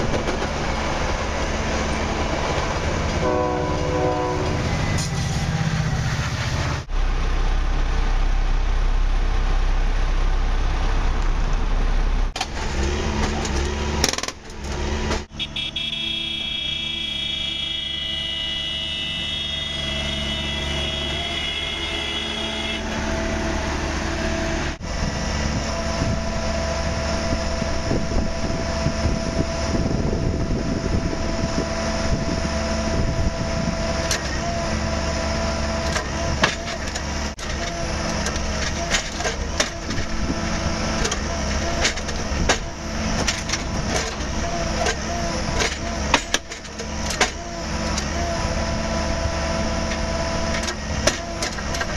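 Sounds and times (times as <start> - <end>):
crossing warning signal tone: 15.3 - 23.0.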